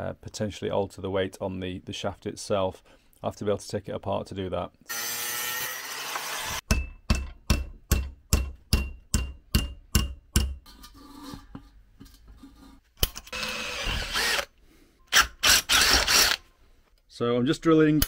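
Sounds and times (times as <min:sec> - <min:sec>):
angle grinder cutting steel: 0:04.9 - 0:06.6.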